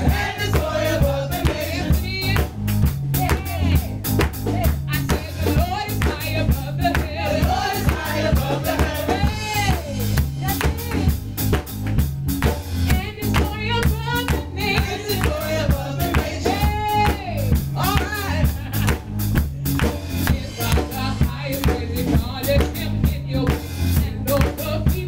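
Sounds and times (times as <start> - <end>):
singers on microphones: 0.0 - 2.5, 4.5 - 11.2, 13.6 - 18.5, 20.2 - 25.0
band with drum kit and bass: 0.0 - 25.0.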